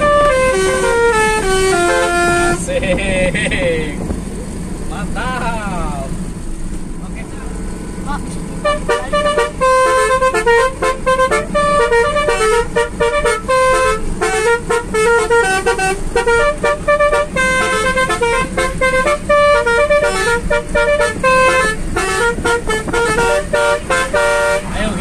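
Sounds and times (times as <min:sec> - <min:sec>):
musical car air horn tune: 0:00.0 - 0:02.7, 0:08.6 - 0:25.0
road noise: 0:00.0 - 0:25.0.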